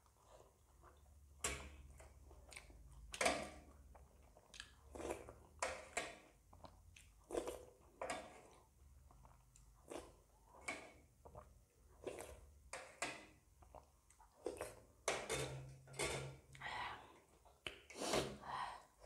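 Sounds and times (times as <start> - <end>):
noodles being chewed: 1.8 - 12.5, 13.6 - 14.9.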